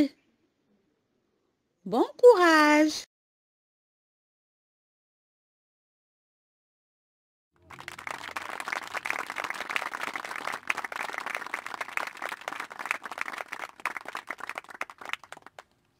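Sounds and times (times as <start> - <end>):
crowd applauding: 7.6 - 15.7.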